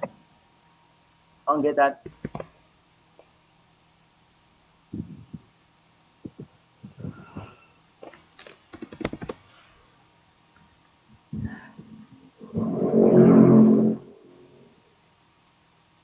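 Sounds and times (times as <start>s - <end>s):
keyboard and mouse clicks: 2.1s - 2.5s, 8.0s - 9.4s
faint low thuds: 4.9s - 5.5s.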